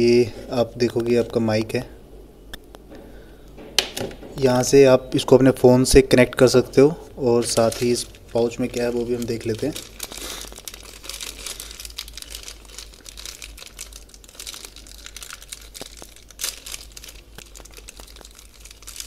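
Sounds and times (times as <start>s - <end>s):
plastic bag crinkling: 7.2s - 19.0s.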